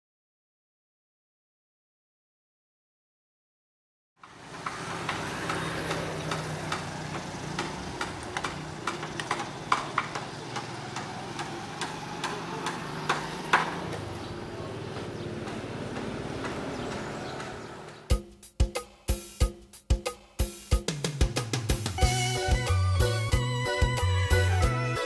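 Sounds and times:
motor engine running: 4.2 - 18.1
sharp clicks and taps: 4.6 - 13.7.

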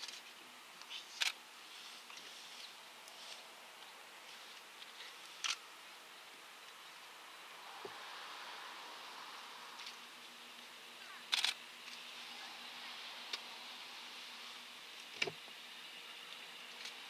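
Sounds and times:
rustling noise: 0.0 - 5.6
steady low hum: 0.0 - 17.0.

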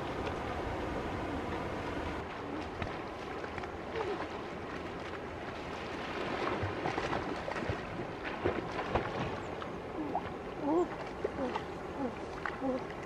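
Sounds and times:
river water lapping: 0.0 - 13.0
swimming strokes splashing: 0.0 - 13.0.

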